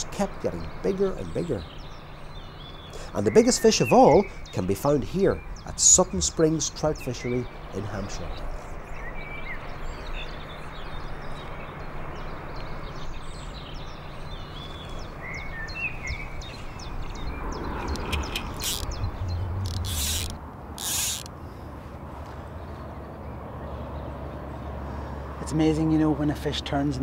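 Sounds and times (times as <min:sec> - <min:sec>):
birds chirping: 0:00.0 - 0:27.0
steady outdoor background: 0:00.0 - 0:27.0
fly reel ratchet clicking: 0:18.0 - 0:21.3.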